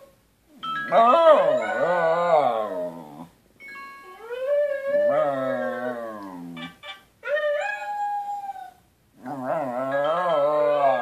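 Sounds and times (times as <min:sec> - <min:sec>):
dog howling: 0:00.9 - 0:03.3, 0:04.3 - 0:06.7, 0:09.3 - 0:11.0
dog howling through laptop speaker: 0:09.5 - 0:11.0.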